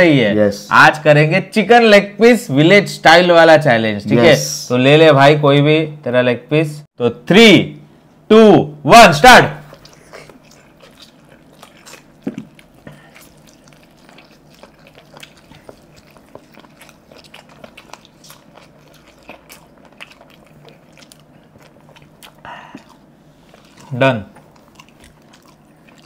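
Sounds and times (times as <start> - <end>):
people chewing with wet mouth smacks: 9.6 - 26.0.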